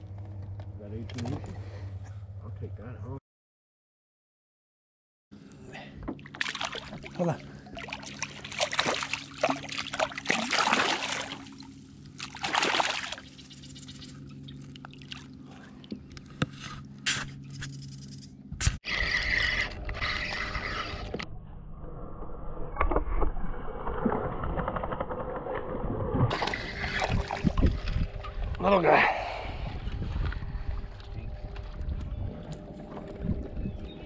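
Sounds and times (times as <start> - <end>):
fish splashing and thrashing: 6.2 - 16.4, 23.8 - 28.5
steady low rumble: 25.0 - 34.0.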